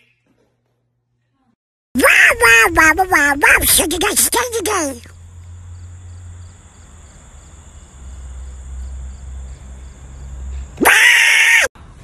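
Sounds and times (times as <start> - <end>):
shrill pitched cry: 2.0 - 3.6, 10.8 - 11.8
crickets chirping: 3.8 - 11.6.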